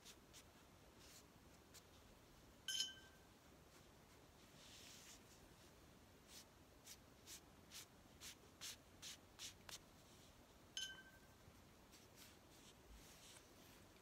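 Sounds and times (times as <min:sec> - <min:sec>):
paintbrush swishing on paper: 0:00.0 - 0:02.4, 0:03.4 - 0:10.4, 0:11.8 - 0:14.0
light clink with ring: 0:02.7 - 0:03.2, 0:10.8 - 0:11.3.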